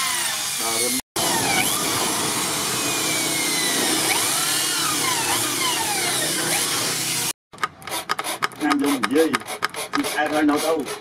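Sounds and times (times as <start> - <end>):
electric drill driving screw: 0.0 - 10.7
scraping strokes: 8.3 - 11.0.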